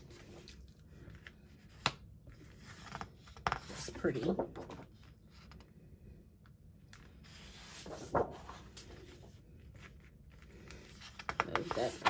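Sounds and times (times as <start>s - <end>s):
paper rustling and sliding: 7.0s - 12.0s
paper flap: 7.5s - 8.9s.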